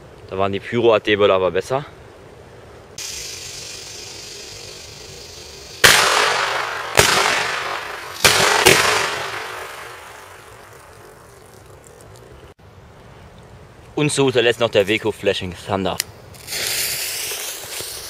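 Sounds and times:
steady hiss: 0.0s - 18.0s
firecracker bangs echoing: 3.0s - 11.5s.

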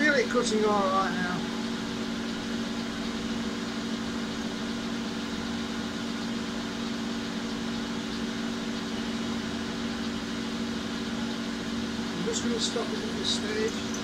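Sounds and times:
metal lathe humming: 0.0s - 14.0s.

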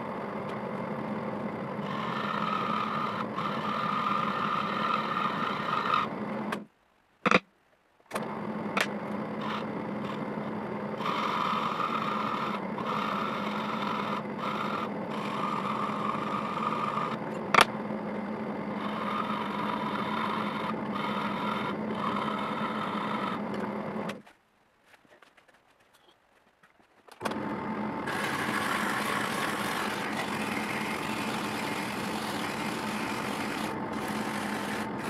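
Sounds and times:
drill press motor running: 0.0s - 6.6s, 8.1s - 24.2s, 27.2s - 35.0s
tool scraping turning wood: 8.2s - 17.7s, 18.7s - 24.3s, 28.0s - 35.0s.

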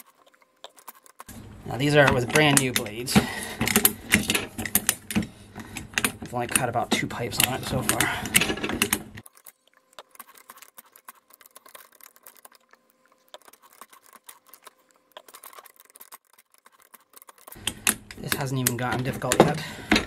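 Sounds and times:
pipe threader ratcheting clicks: 1.7s - 9.2s, 17.5s - 20.0s.

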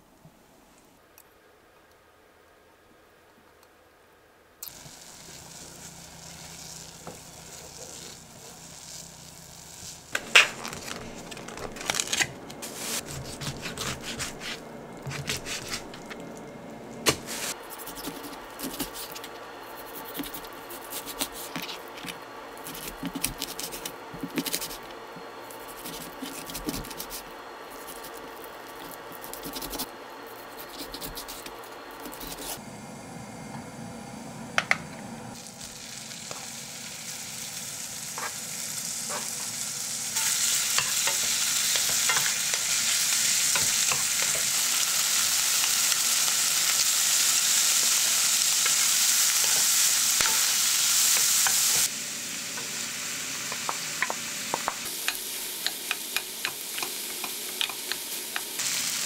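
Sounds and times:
low steady hum: 0.0s - 46.6s.

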